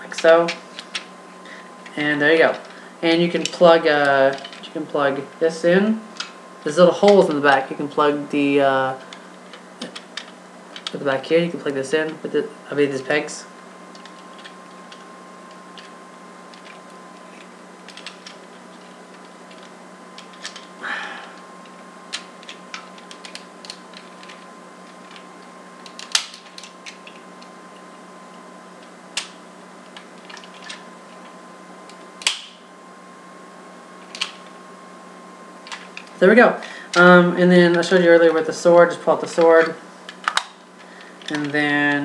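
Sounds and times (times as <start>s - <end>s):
faint electrical hum: 0.0s - 42.0s
plastic toy parts clicking: 16.5s - 18.4s, 19.2s - 20.7s, 22.1s - 24.4s, 25.8s - 27.2s, 34.1s - 34.4s, 41.2s - 41.6s.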